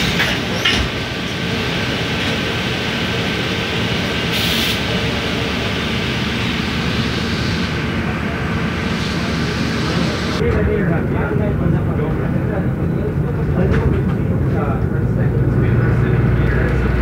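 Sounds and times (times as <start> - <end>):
bus engine and road noise: 0.0 - 17.0
brief air hiss: 4.3 - 4.9.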